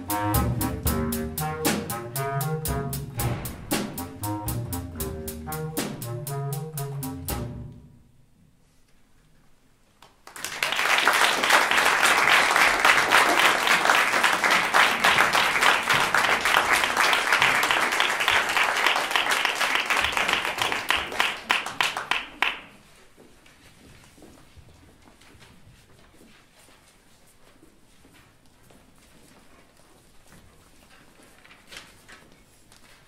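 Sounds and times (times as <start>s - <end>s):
audience applause: 10.2s - 22.7s.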